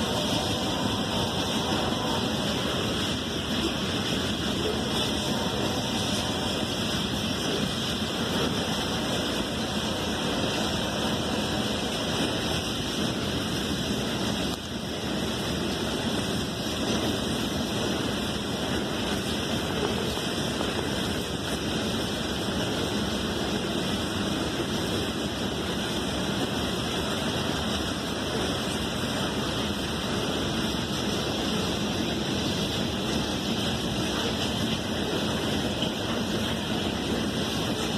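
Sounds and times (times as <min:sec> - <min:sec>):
train wheels rumbling on rails: 0:00.0 - 0:37.9.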